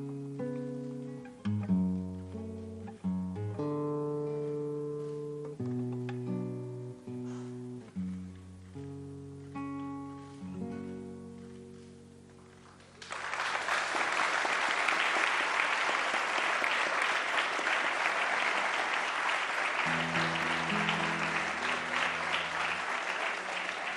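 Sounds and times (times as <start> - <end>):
acoustic guitar chords: 0.0 - 12.6, 19.8 - 23.7
audience applause: 12.6 - 23.9.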